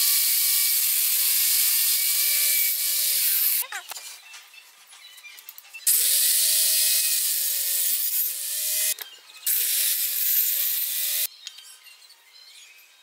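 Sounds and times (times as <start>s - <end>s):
saw blade cutting wood: 0.0s - 3.6s, 5.9s - 11.3s.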